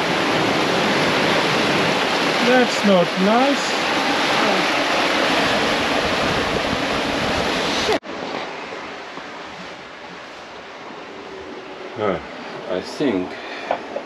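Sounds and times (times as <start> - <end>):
sea water rushing past hull: 0.0 - 14.0
wind on microphone: 3.7 - 12.3.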